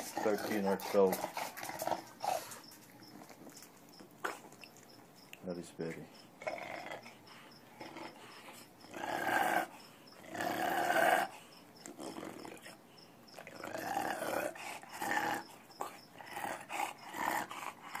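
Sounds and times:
dog grumbling and growling: 0.0s - 2.6s, 6.4s - 12.8s, 13.4s - 18.0s.

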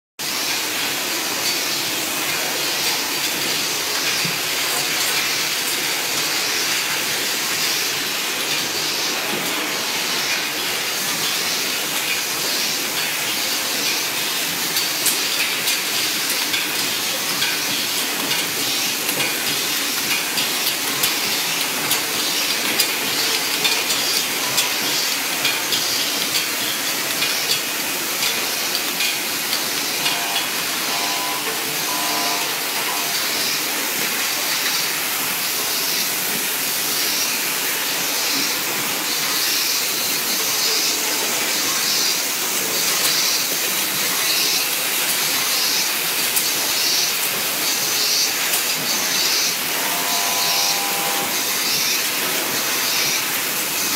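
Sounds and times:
machines rattling hiss: 0.2s - 53.9s.

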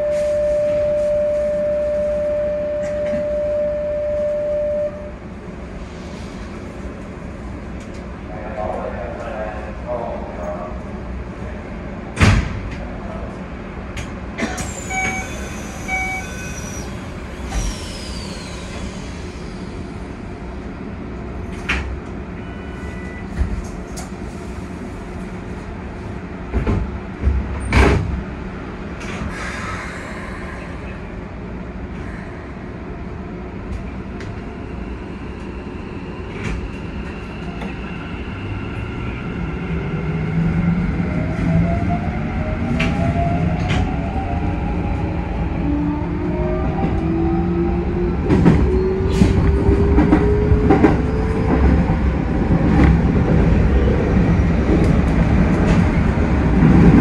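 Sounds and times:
short beeps: 0.0s - 5.1s, 14.9s - 16.6s
electric train hum: 0.0s - 57.0s.

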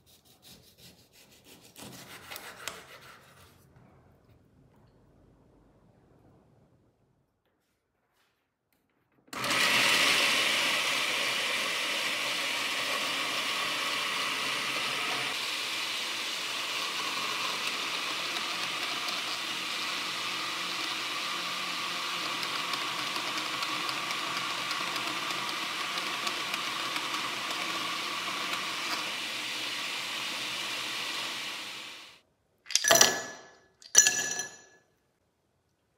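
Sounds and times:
electric juicer motor running: 9.4s - 32.2s.

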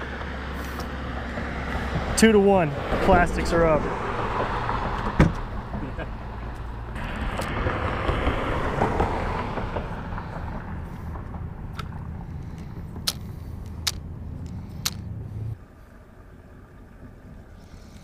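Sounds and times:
road vehicle passing: 0.0s - 18.0s
sharp clicks: 11.7s - 15.1s.

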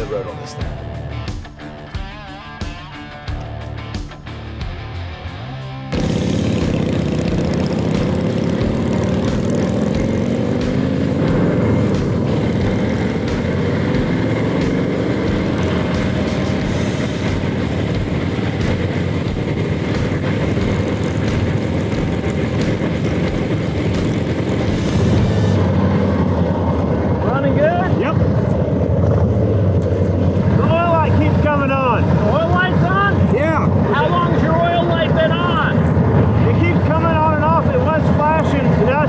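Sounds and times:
motorcycle engines running: 0.0s - 39.0s
wind rushing over microphone: 10.5s - 39.0s.

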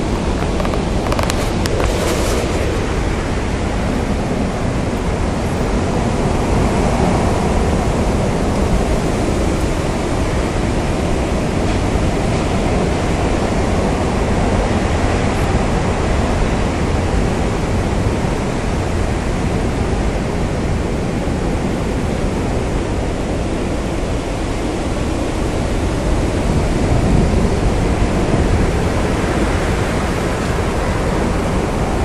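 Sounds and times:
strong wind rushing: 0.0s - 32.0s.

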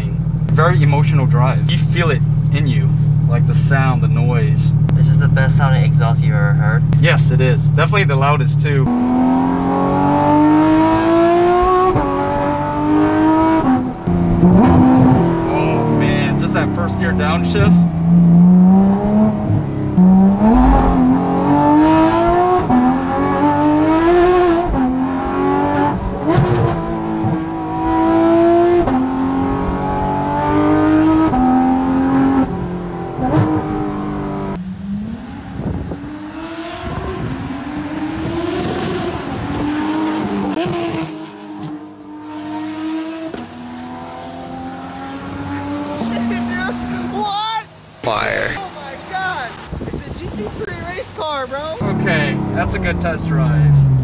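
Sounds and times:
car engine accelerating: 0.0s - 54.0s.

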